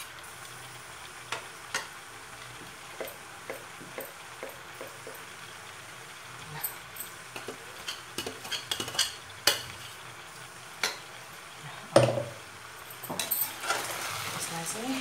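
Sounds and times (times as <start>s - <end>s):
vegetables sizzling: 0.0s - 15.0s
metal spoon scraping a pan: 7.4s - 10.1s, 13.2s - 14.5s.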